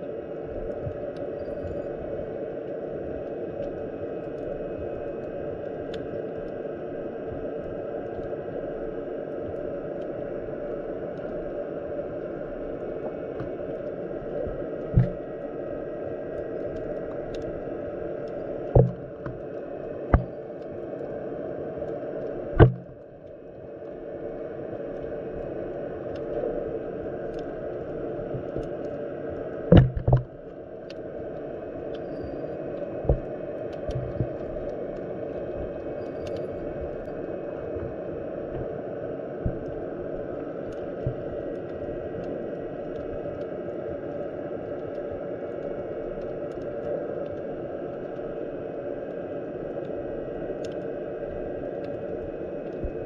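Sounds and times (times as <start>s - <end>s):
low rush of moving water: 0.0s - 53.0s.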